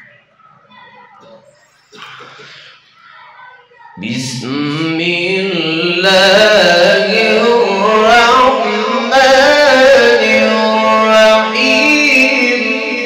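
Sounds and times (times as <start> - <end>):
young man reciting melodically: 4.0 - 13.0.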